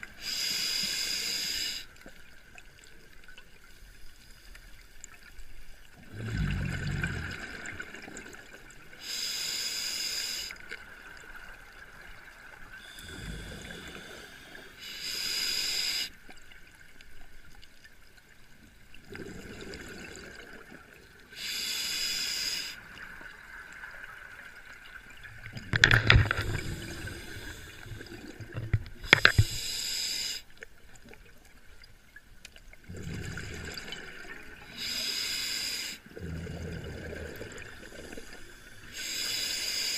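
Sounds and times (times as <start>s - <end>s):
bubbling hiss of exhaled air: 0.0s - 1.9s, 6.1s - 8.3s, 9.0s - 10.6s, 12.8s - 16.1s, 21.3s - 22.9s, 25.8s - 30.5s, 32.9s - 39.9s
diver breathing through regulator: 0.2s - 1.9s, 9.0s - 10.6s, 12.8s - 16.2s, 21.4s - 22.9s, 25.8s - 28.4s, 29.0s - 30.5s, 34.6s - 39.9s.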